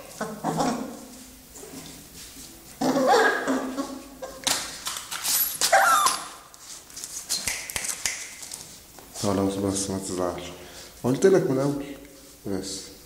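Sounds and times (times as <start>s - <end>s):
scuffling noise: 0.0s - 2.9s, 3.6s - 10.2s
dog whining: 5.6s - 6.5s.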